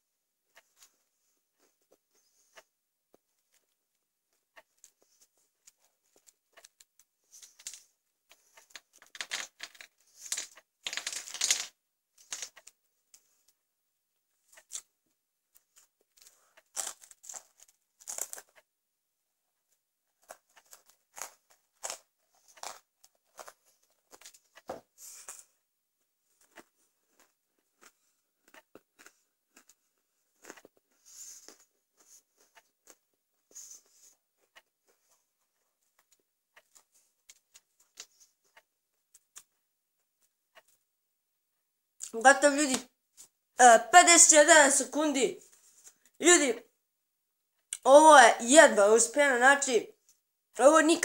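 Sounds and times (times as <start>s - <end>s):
pretzel sticks crunching: 15.8s - 18.6s, 20.2s - 24.4s.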